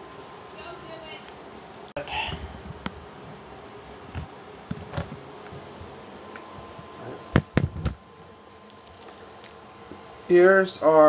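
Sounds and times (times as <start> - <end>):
low steady hum: 0.0 - 11.0
handling noise: 4.1 - 10.0.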